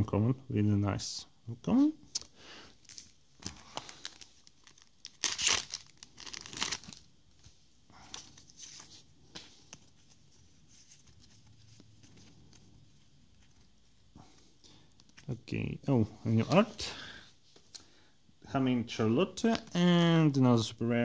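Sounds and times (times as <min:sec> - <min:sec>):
wrapper crinkling: 0:02.1 - 0:09.0
foil pack tearing: 0:03.8 - 0:07.0.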